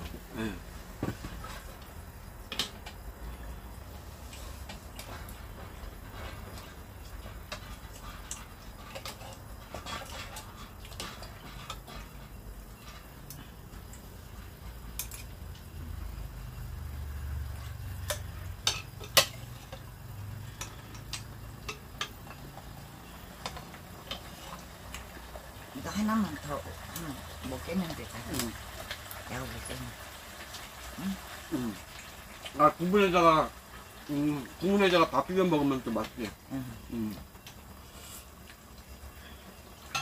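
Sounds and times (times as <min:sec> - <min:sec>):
metal tongs and ladle clinking pots: 0:06.1 - 0:13.4, 0:14.9 - 0:15.4, 0:18.0 - 0:19.9, 0:20.5 - 0:22.7.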